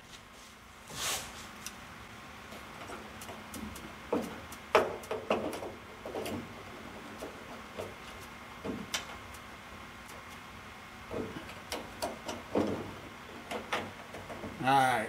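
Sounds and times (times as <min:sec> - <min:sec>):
soft rub: 0:00.0 - 0:01.6.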